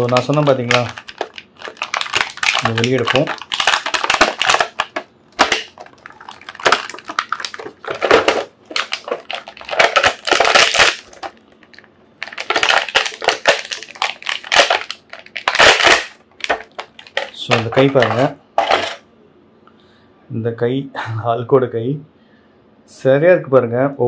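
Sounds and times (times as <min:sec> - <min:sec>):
plastic packaging crackling: 0:00.0 - 0:19.0.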